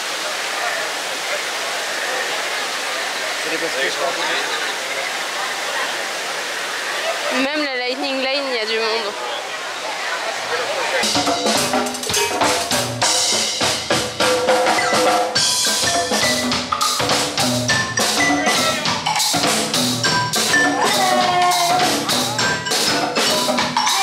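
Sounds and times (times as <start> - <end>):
drum-kit beat: 11.0 - 24.0
pitched melody: 11.0 - 24.0.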